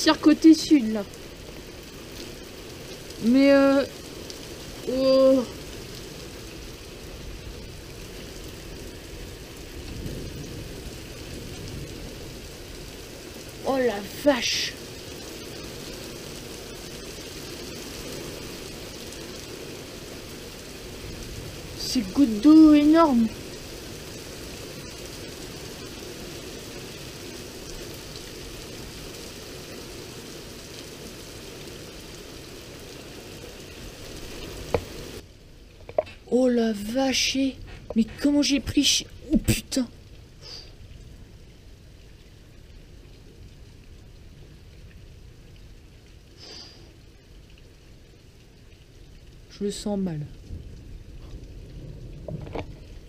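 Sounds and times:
low thunder rumble: 0.0s - 29.8s, 49.7s - 53.0s
heavy rain falling: 0.0s - 53.0s
sharp raindrop hits: 0.0s - 53.0s.

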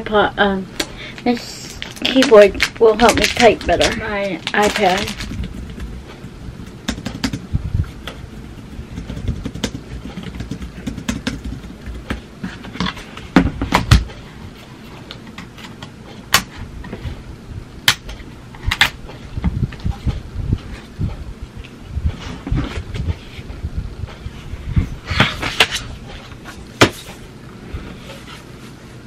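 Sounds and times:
keyboard keys clicking: 8.9s - 12.0s.

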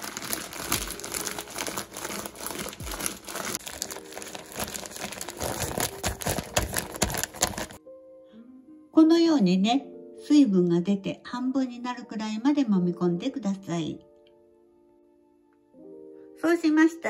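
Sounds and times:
plastic bag crinkling: 0.0s - 7.8s.

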